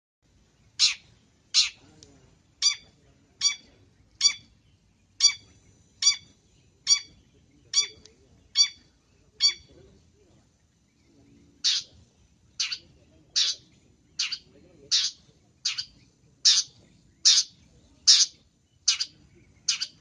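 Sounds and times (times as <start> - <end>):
bird giving harsh calls: 0.8 - 1.8, 2.6 - 4.5, 5.2 - 7.1, 7.7 - 9.7, 11.6 - 12.0, 12.6 - 20.0.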